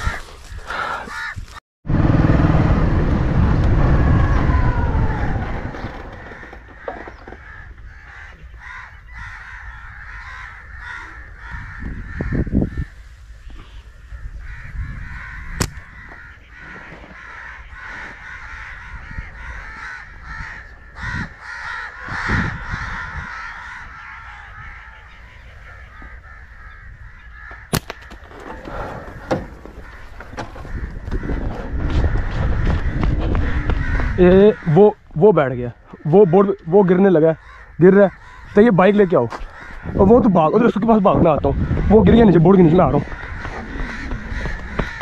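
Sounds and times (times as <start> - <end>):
crows cawing: 0.0 - 1.6, 4.5 - 45.0
birds calling: 0.0 - 45.0
low rumbles on microphone: 1.8 - 8.2, 28.5 - 34.6.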